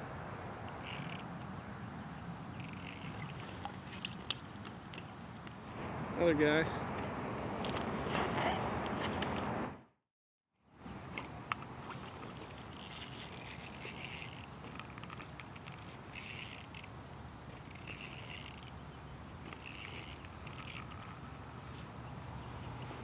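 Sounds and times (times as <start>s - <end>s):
fishing reel whirring: 0.7s - 1.3s, 2.6s - 3.4s, 12.6s - 16.9s, 17.6s - 18.8s, 19.4s - 21.2s.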